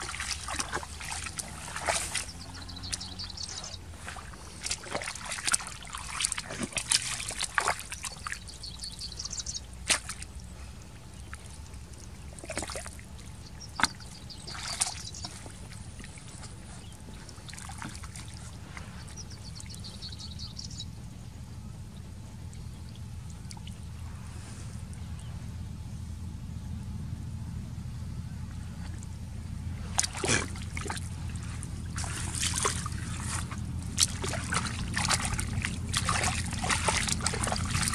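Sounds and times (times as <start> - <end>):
hands splashing in muddy water: 0.0 - 20.0, 29.8 - 37.9.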